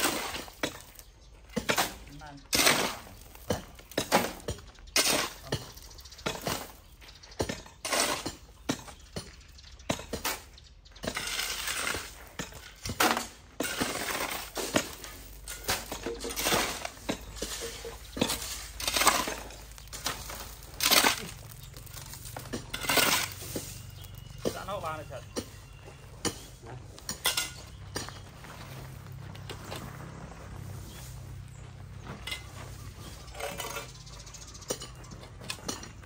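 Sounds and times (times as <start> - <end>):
rough scraping noise: 11.0 - 25.5, 26.1 - 36.0.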